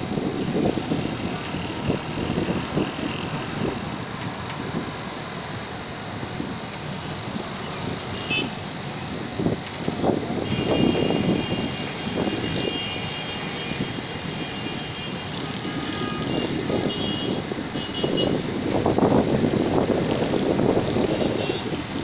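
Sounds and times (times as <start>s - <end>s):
outdoor city rumble: 0.0s - 22.0s.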